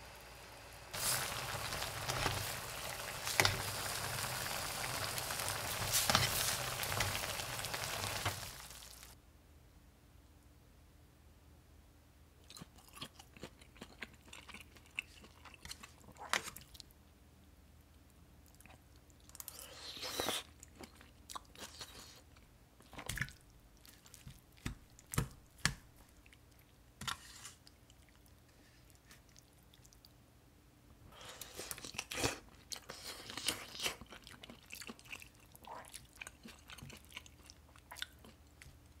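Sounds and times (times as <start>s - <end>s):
person chewing and crunching: 12.4s - 16.9s, 18.5s - 26.8s, 31.2s - 39.0s.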